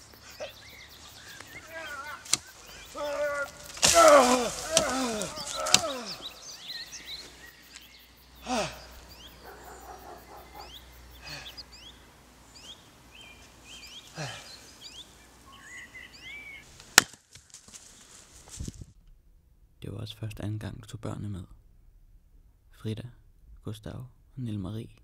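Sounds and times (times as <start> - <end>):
small birds chirping: 0.0 - 16.8.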